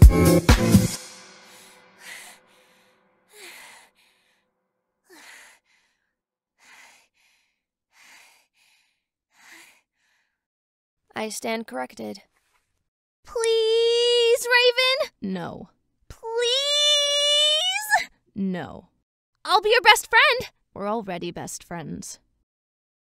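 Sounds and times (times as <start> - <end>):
dance music with steady beat: 0.0 - 1.1
person breathing hard: 1.4 - 4.4, 5.1 - 10.5.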